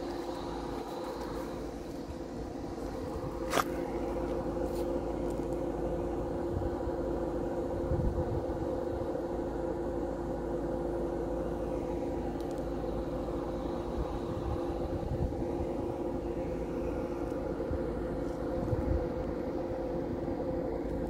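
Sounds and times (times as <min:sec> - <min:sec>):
machine-like hum: 0:00.0 - 0:21.0
wind buffeting microphone: 0:01.6 - 0:04.6, 0:06.3 - 0:09.1, 0:13.8 - 0:19.7.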